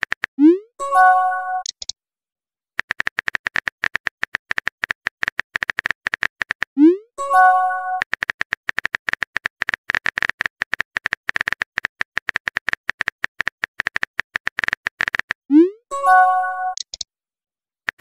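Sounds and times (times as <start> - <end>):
simulated keyboard tap clicks: 1.6 - 1.9, 2.8 - 6.7, 8.0 - 15.4, 16.8 - 17.1.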